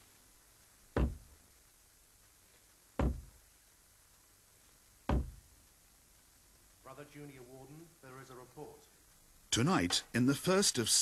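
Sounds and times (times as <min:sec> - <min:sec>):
knocks on a wooden door: 0:00.9 - 0:01.3, 0:03.0 - 0:03.4, 0:05.1 - 0:05.4.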